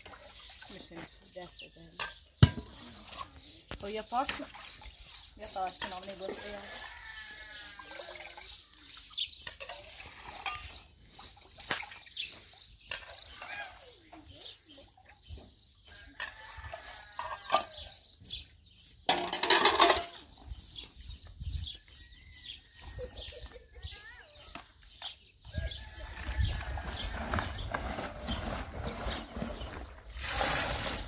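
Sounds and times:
birds chirping: 0.0s - 31.0s.

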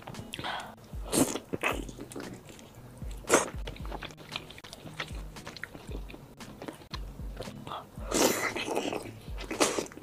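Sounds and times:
wet chewing with lip smacks: 2.0s - 7.6s.

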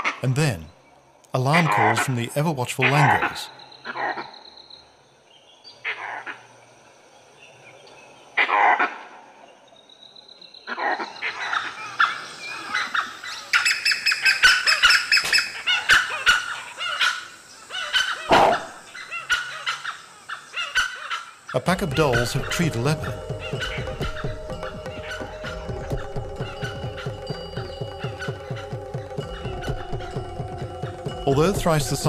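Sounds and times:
wild dogs yapping and chattering: 10.7s - 21.3s, 22.0s - 30.6s
monkey alarm calls: 10.7s - 32.0s.

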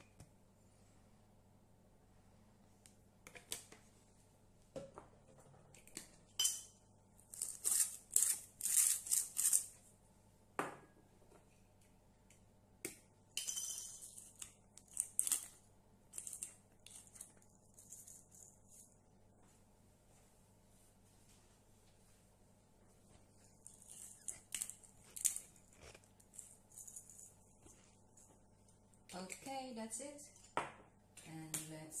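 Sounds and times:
spice grinder crunching: 7.3s - 9.7s, 14.3s - 15.5s, 16.1s - 18.2s.

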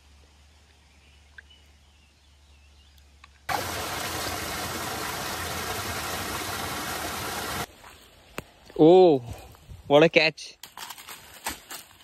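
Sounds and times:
rushing water: 3.5s - 7.7s.

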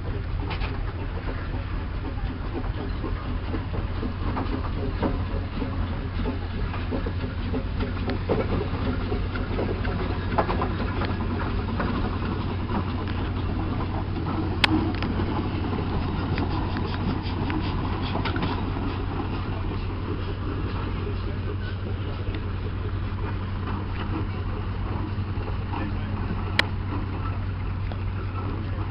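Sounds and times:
steam engine low rumble: 0.0s - 28.9s.

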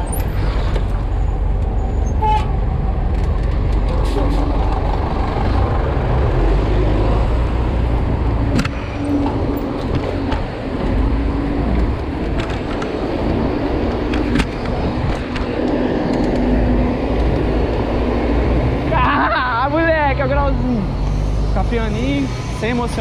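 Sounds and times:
car and truck engines: 0.0s - 23.0s
steady low traffic rumble: 0.0s - 23.0s.

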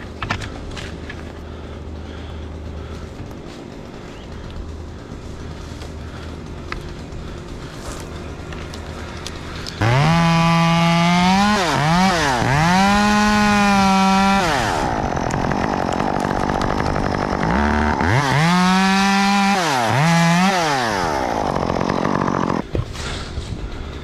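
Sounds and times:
chainsaw cutting wood: 9.3s - 22.7s.

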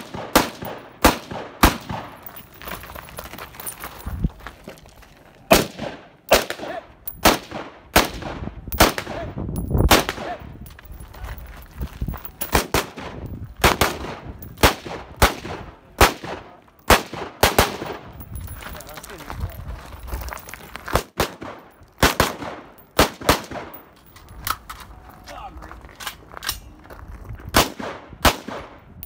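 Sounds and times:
pistol shots: 0.0s - 2.2s, 5.5s - 9.3s, 9.9s - 10.4s, 12.5s - 18.1s, 20.9s - 23.8s, 27.6s - 28.8s
rifle shots: 0.0s - 2.2s, 5.5s - 9.3s, 9.9s - 10.4s, 12.5s - 18.1s, 20.9s - 23.8s, 27.6s - 28.8s.

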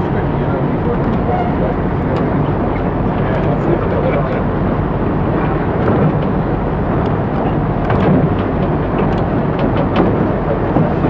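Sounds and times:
diesel engine running: 0.0s - 11.0s
train rumbling: 0.0s - 11.0s
light clicks and rattles: 5.3s - 11.0s.

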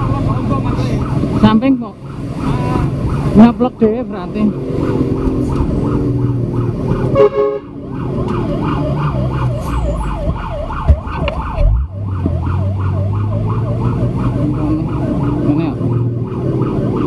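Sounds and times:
fire truck siren yelping: 0.0s - 17.0s
horn blare: 7.1s - 7.8s.

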